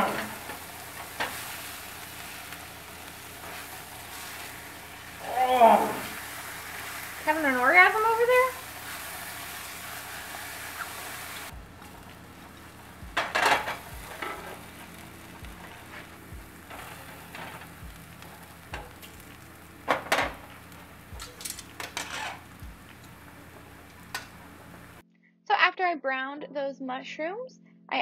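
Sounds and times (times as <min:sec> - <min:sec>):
spatula scraping and stirring: 0:00.0 - 0:05.2, 0:06.0 - 0:19.7, 0:21.2 - 0:22.5
mushrooms sizzling in frying pan: 0:00.0 - 0:25.0.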